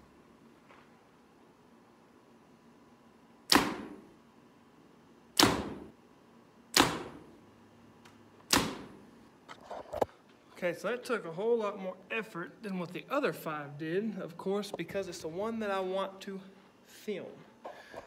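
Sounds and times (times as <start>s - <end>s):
arrow punching through paper: 3.5s - 4.0s, 8.5s - 9.0s.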